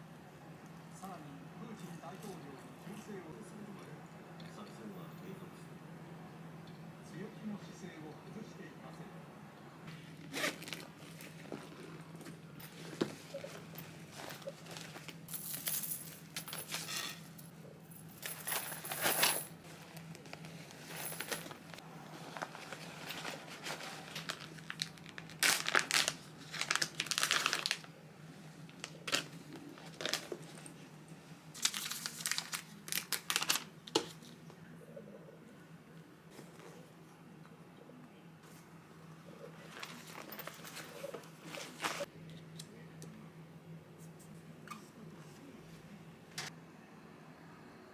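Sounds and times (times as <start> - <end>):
faint steady hum: 0.0 - 47.9
handbags rustling and clicking: 10.0 - 17.4, 18.0 - 27.9, 28.6 - 30.9, 31.6 - 34.3, 39.6 - 42.1.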